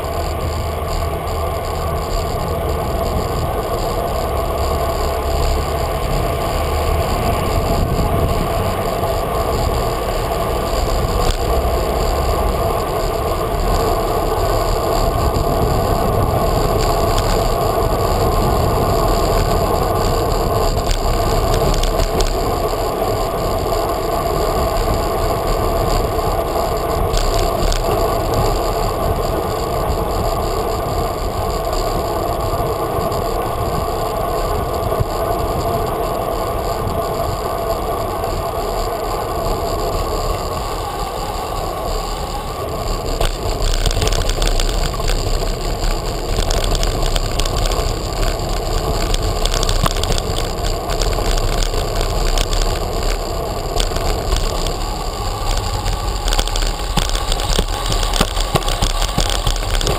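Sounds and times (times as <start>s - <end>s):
bicycle tyres rolling on street: 0.0s - 59.9s
bike rattling: 0.0s - 59.9s
small knocks and clicks: 43.0s - 59.9s.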